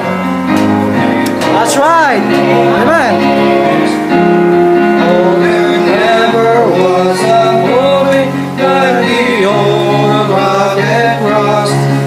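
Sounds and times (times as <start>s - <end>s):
instrumental accompaniment: 0.0s - 12.0s
man singing a hymn: 1.6s - 12.0s.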